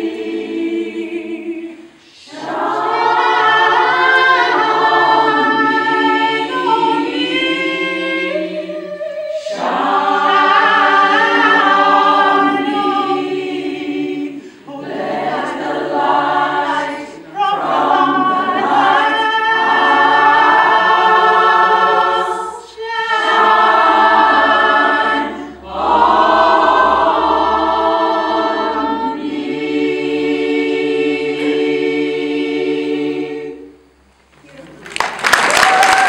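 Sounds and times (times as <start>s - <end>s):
women's choir singing a cappella: 0.0s - 34.1s
applause: 34.5s - 36.0s.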